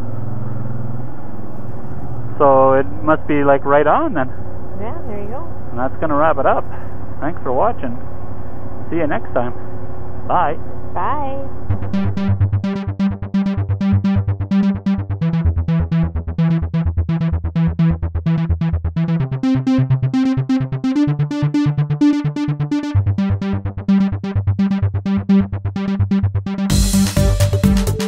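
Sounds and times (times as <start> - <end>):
moving bass line: 1.4 - 28.0
synthesizer repeated notes: 10.3 - 28.0.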